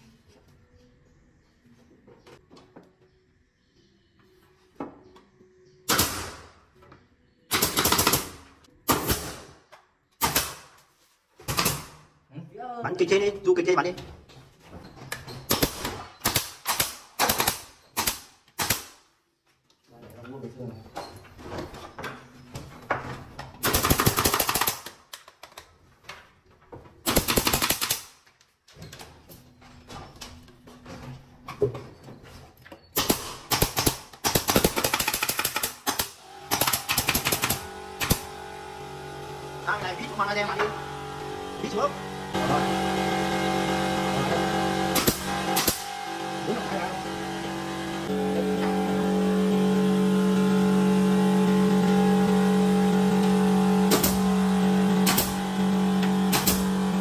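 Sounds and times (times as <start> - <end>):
nail gun firing: 5.9 - 6.6, 7.5 - 9.6, 10.2 - 10.8, 11.4 - 12.0, 15.5 - 19.0, 23.6 - 25.3, 27.1 - 28.2, 33.0 - 38.8, 44.8 - 46.3, 53.8 - 56.9.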